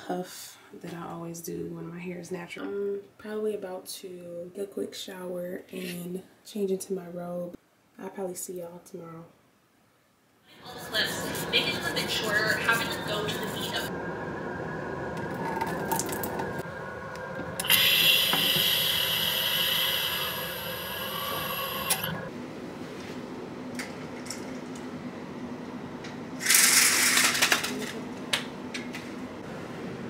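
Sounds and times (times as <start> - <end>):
water splashing into sink: 15.6 - 16.5.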